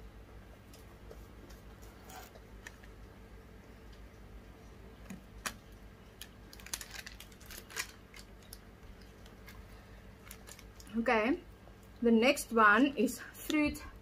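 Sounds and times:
plastic wrapper crinkling: 0:05.4 - 0:11.0.

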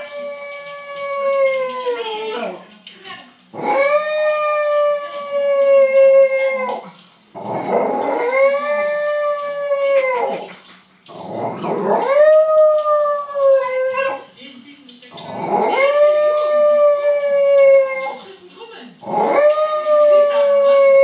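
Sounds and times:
dog howling: 0:00.0 - 0:02.6, 0:03.6 - 0:06.9, 0:07.5 - 0:10.5, 0:11.4 - 0:14.3, 0:15.3 - 0:18.3, 0:19.0 - 0:21.0.

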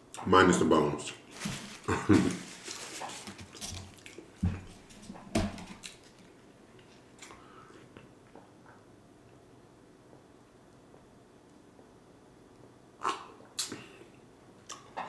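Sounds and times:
chewing and lip smacks: 0:14.6 - 0:15.0.

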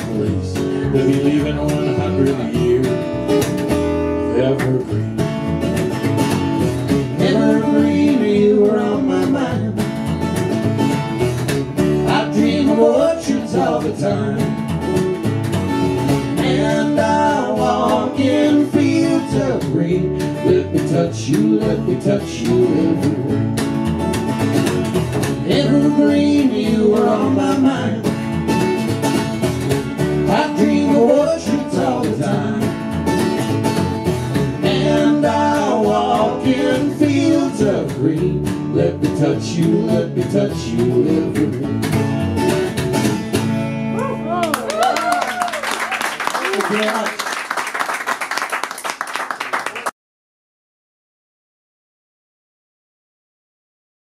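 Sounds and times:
upright bass: 0:00.0 - 0:45.2
acoustic guitar: 0:00.0 - 0:48.4
person singing: 0:07.1 - 0:09.8, 0:12.0 - 0:14.5, 0:16.4 - 0:23.3, 0:25.4 - 0:28.1, 0:34.6 - 0:41.7.

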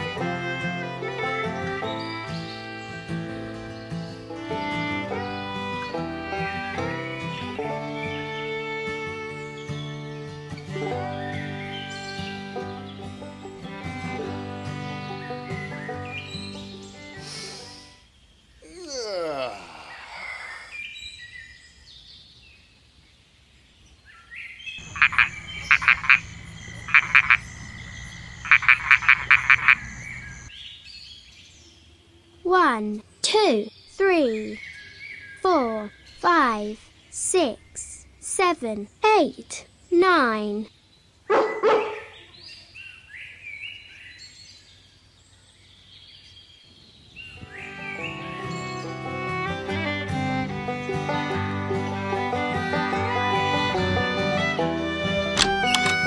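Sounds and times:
birds chirping: 0:00.5 - 0:51.0, 0:55.2 - 0:56.0
faint background noise: 0:16.8 - 0:47.7
sharp high cartoon chirps: 0:24.9 - 0:29.9
dog barking: 0:41.3 - 0:42.2.

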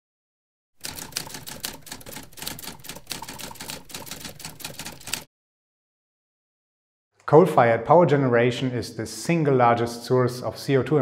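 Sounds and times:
typewriter keys clacking: 0:00.8 - 0:05.3.

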